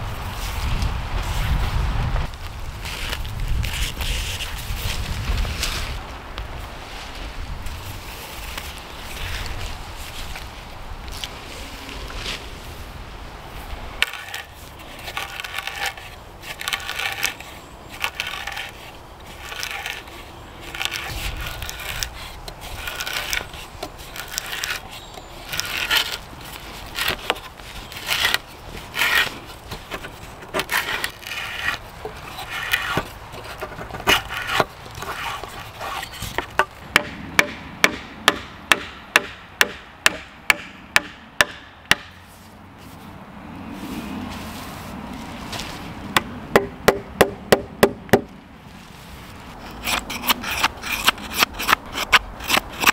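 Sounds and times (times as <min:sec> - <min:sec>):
hand auger scraping wood: 0:02.2 - 0:06.0, 0:14.0 - 0:36.8, 0:43.8 - 0:52.9
hatchet tapping wooden peg: 0:36.9 - 0:42.1, 0:46.5 - 0:48.3.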